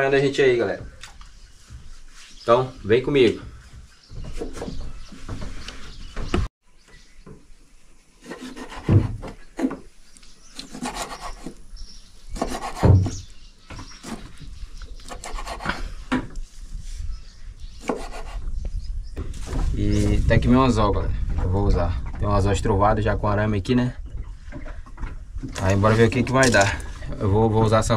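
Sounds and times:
dull thumps: 0:03.0 - 0:06.5.

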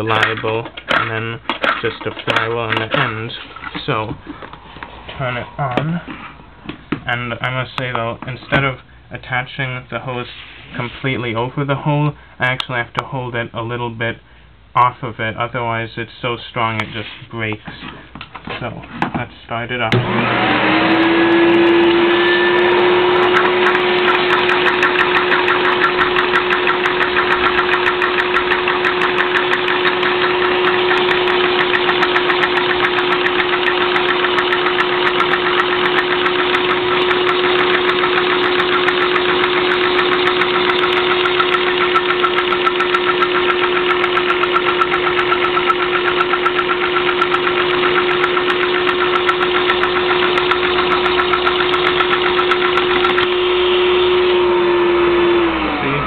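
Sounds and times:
vacuum cleaner motor whine: 0:19.9 - 0:56.0
toy engine piston clacking: 0:23.3 - 0:53.4.

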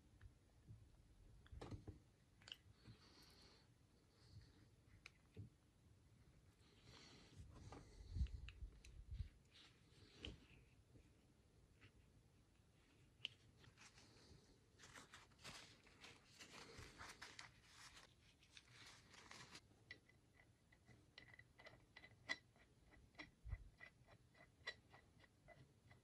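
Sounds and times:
paper tissue crinkling: 0:12.8 - 0:19.6.

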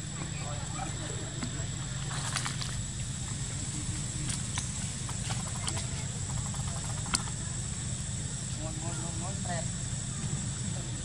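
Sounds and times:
crunches in dry leaves: 0:01.9 - 0:07.2.

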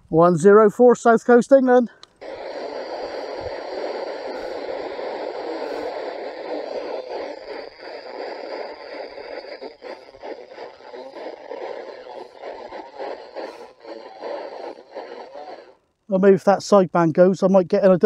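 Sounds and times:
radio static hiss: 0:01.0 - 0:16.9.

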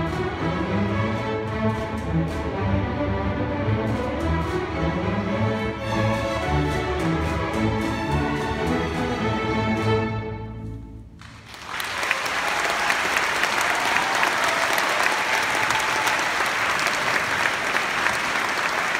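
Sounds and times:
audience applause: 0:11.2 - 0:18.9.

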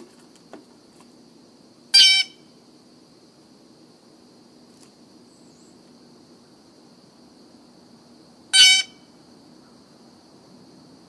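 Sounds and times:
harsh bird call: 0:02.0 - 0:02.4, 0:08.5 - 0:09.1.

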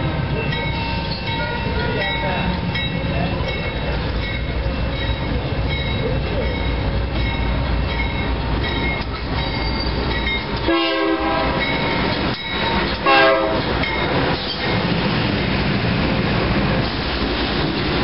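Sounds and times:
diesel locomotive rumbling: 0:00.0 - 0:18.0
train air horn blasts: 0:10.6 - 0:11.6, 0:13.0 - 0:13.7.

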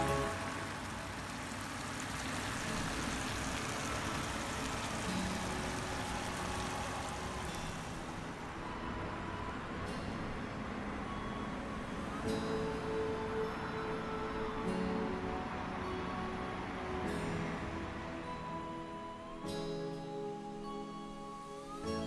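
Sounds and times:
food sizzling in a pan: 0:00.0 - 0:08.4.

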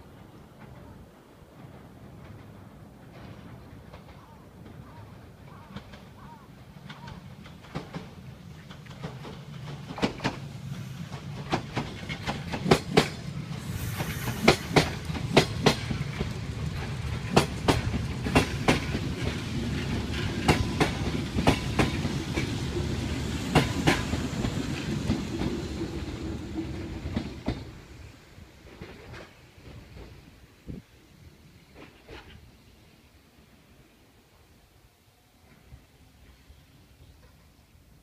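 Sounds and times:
train passing with wheels clacking: 0:00.0 - 0:38.0.

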